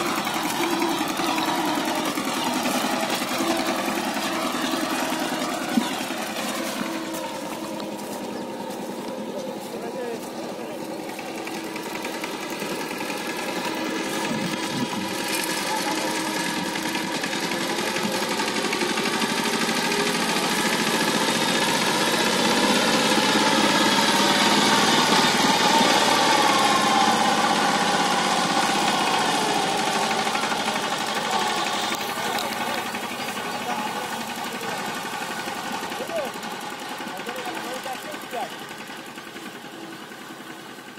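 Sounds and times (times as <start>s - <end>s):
diesel engine chugging: 0.0s - 40.9s.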